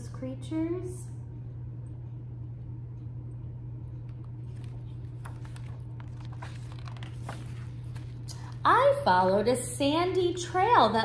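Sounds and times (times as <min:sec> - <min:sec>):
low hum of room tone: 0:00.0 - 0:11.0
book page turning: 0:04.1 - 0:08.6.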